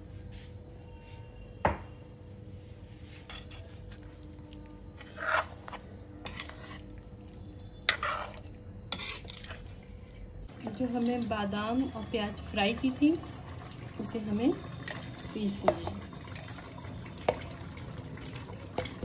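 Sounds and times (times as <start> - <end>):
spoon scraping and knocking pan: 4.9 - 6.9, 7.8 - 9.6.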